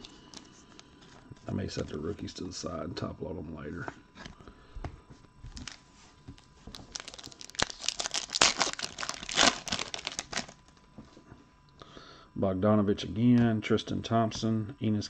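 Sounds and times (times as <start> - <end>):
foil pack crinkling and tearing: 5.5 - 10.8.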